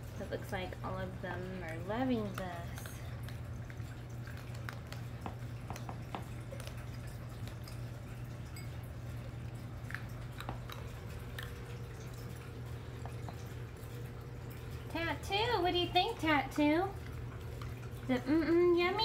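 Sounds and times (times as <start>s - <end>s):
steady low hum: 0.0s - 19.0s
cats crunching dry kibble: 1.5s - 8.2s.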